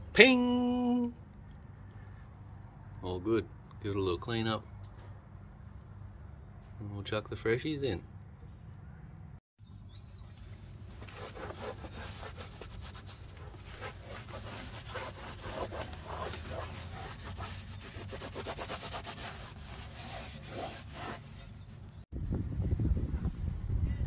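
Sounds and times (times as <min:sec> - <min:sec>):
cloth rag scrubbing: 0:10.6 - 0:21.7.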